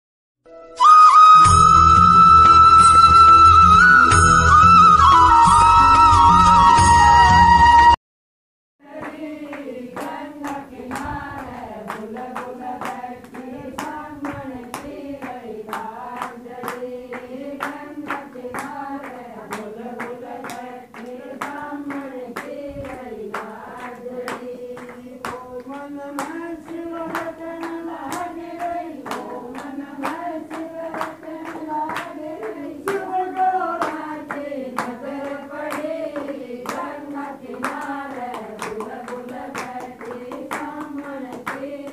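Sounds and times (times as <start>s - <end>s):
hands clapping to a beat: 2.3s - 2.8s, 8.9s - 41.9s
women singing in unison: 8.8s - 41.9s.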